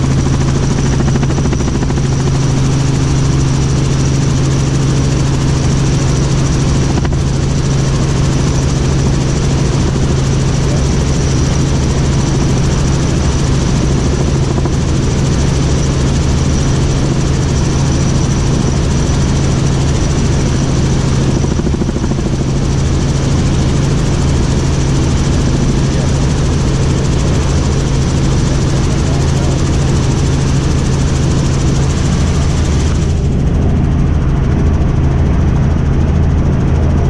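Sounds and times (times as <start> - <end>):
helicopter engine and rotor drone: 0.0 - 37.0.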